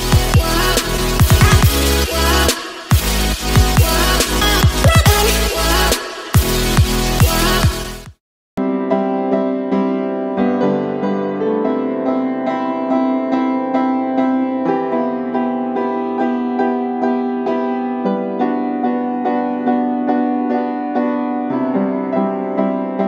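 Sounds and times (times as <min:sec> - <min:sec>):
piano music: 0:00.0 - 0:08.0, 0:08.6 - 0:23.0.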